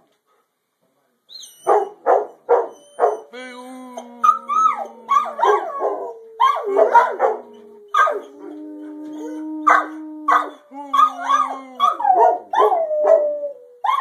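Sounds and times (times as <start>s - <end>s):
dog barks: 1.6s - 3.2s, 5.1s - 8.2s, 9.7s - 13.2s
dogs howling: 2.6s - 14.0s.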